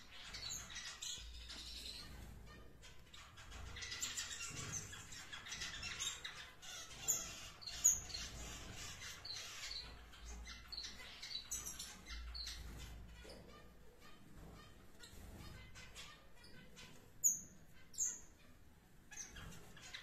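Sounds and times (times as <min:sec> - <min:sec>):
finches chirping: 0:00.0 - 0:20.0
loud bird calls: 0:00.0 - 0:20.0.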